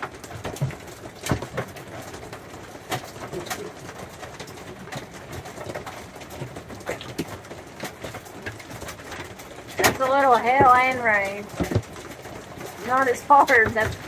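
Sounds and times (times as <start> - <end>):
rain and hail on a roof: 0.0 - 14.0.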